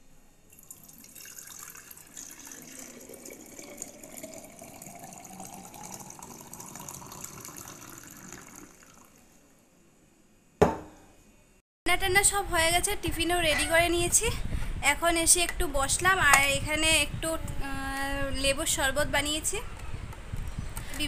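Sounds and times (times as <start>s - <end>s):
drink pouring into glass jar: 0.5s - 9.3s.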